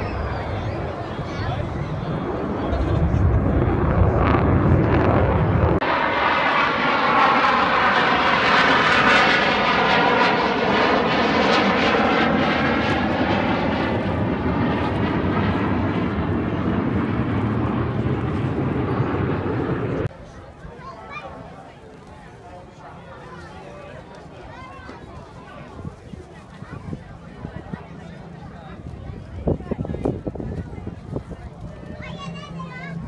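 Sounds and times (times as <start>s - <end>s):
jet aircraft flying past: 0.0s - 20.4s.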